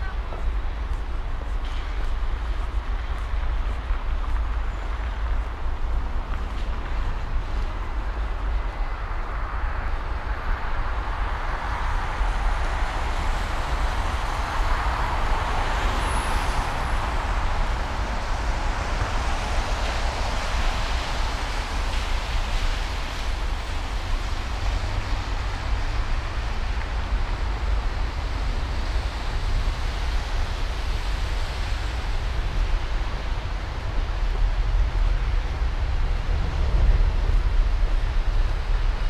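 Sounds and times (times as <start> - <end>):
city street traffic: 0.0 - 39.0
deep rumble: 33.1 - 39.0.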